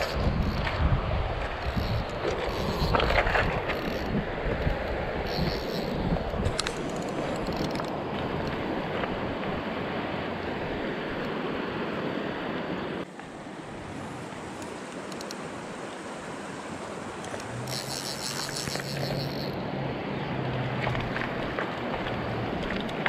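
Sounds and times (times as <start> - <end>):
wind buffeting microphone: 0.0 - 10.0
river water rushing: 0.0 - 23.0.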